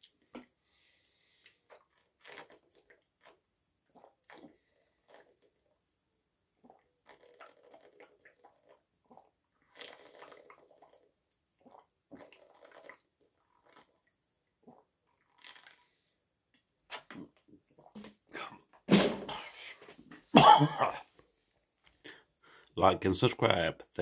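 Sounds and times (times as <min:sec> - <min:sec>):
person gulping water: 0:01.5 - 0:05.7, 0:06.6 - 0:16.1, 0:16.9 - 0:19.7, 0:20.4 - 0:21.1.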